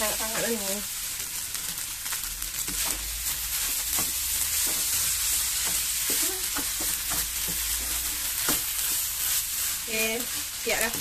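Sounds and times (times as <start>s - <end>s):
rice sizzling in a wok: 0.0s - 11.0s
spatula scraping a pan: 2.6s - 11.0s.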